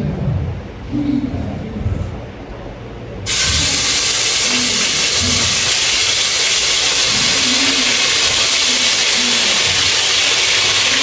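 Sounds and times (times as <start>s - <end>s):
loud hiss: 3.2s - 11.0s.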